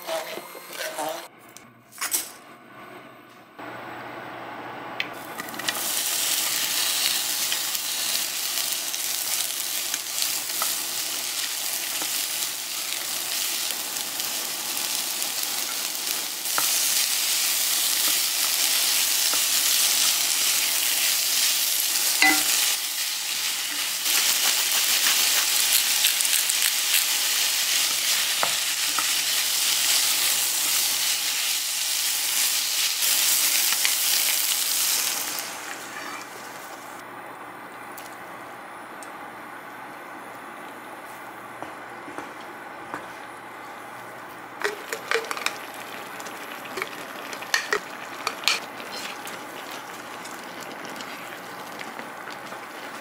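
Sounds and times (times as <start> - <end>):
food sizzling in oil: 5.4 - 37.0, 44.6 - 53.0.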